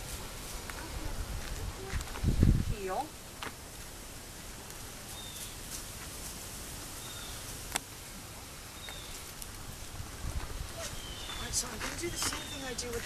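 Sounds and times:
soft steady hiss: 0.0 - 13.0
faint bird chirps: 10.8 - 12.8.

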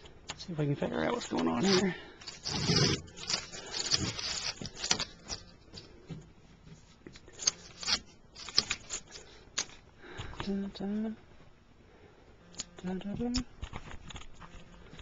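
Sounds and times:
scraping sheet metal: 1.6 - 5.4.

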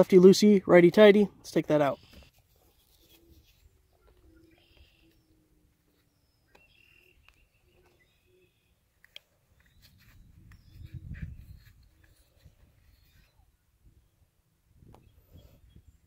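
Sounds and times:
faint bird chirps: 3.0 - 14.2.

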